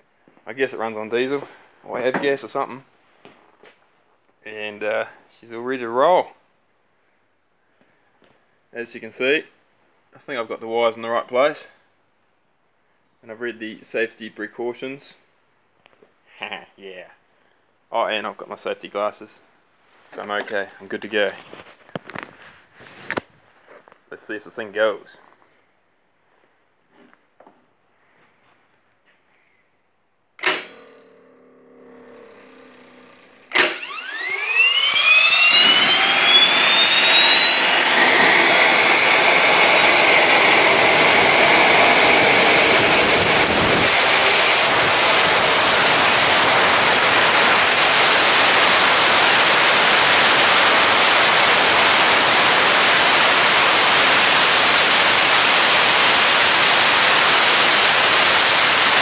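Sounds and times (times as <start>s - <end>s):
turbine rising whine: 30.4s - 59.0s
turbine rushing noise: 33.8s - 59.0s.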